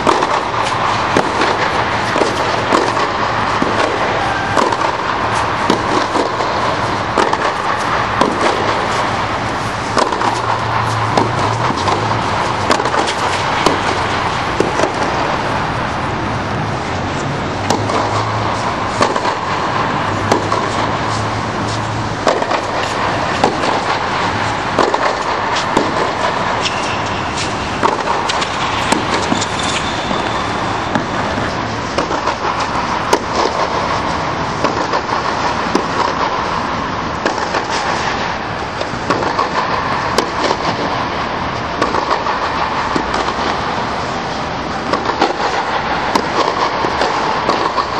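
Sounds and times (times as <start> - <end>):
tennis ball bouncing: 0.0 - 15.7, 17.1 - 36.4, 44.8 - 47.9
racket hitting tennis ball: 0.0 - 47.9
steady loud drone: 0.0 - 47.9.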